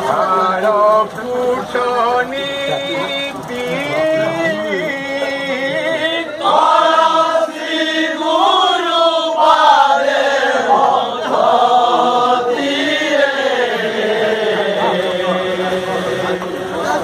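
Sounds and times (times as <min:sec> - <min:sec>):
men chanting together: 0:03.7 - 0:17.0.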